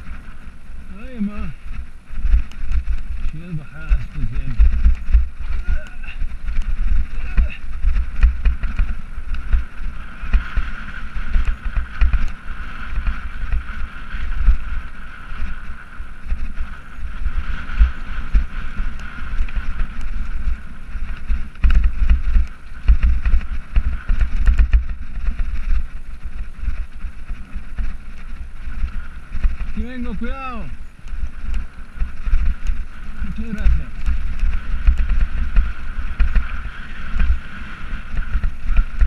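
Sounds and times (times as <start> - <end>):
tyres crunching on gravel: 0.0 - 12.1, 26.8 - 39.0
bike rattling and clicking: 0.0 - 39.0
wind buffeting microphone: 0.0 - 39.0.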